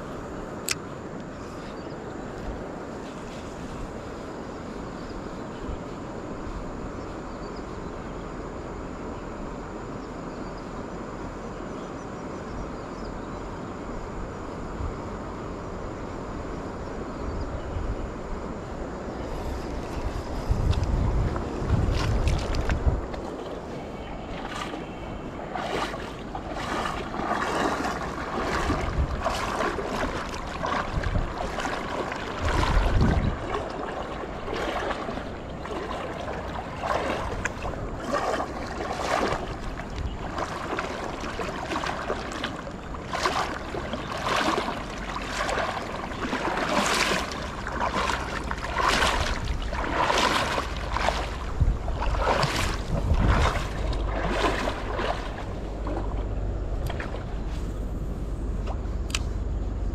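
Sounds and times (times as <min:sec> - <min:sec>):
wind buffeting the microphone: 0:12.5 - 0:59.9
small water splashes: 0:19.3 - 0:59.3.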